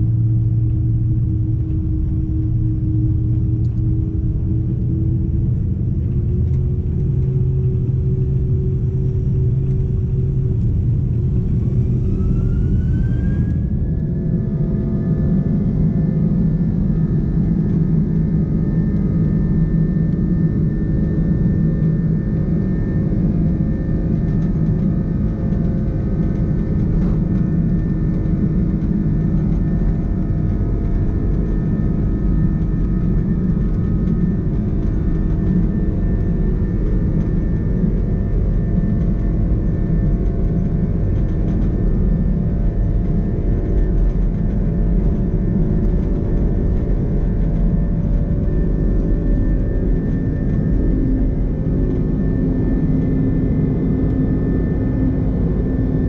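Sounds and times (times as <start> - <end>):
jet engines rumbling in cabin: 0.0 - 56.0
wheels roaring on runway: 5.5 - 18.0.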